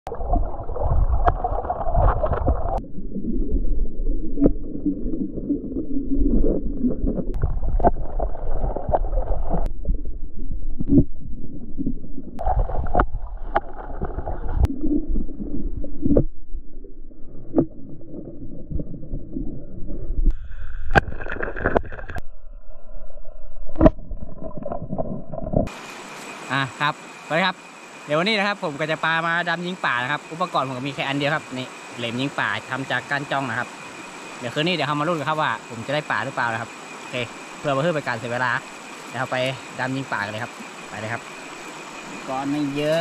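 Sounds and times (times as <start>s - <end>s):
underwater stream gurgling: 0.1s - 43.0s.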